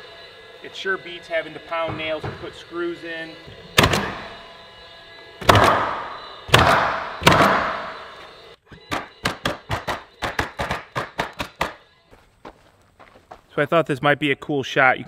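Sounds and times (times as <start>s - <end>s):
nail gun firing: 3.8s - 4.2s, 5.4s - 8.0s, 8.9s - 11.8s.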